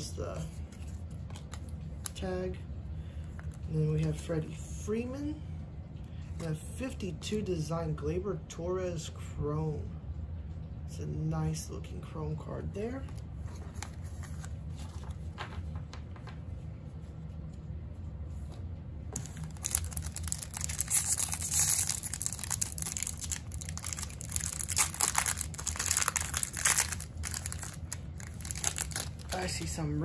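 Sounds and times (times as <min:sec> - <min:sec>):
steady low hum: 0:00.0 - 0:30.0
foil wrapper crinkling: 0:19.2 - 0:29.8.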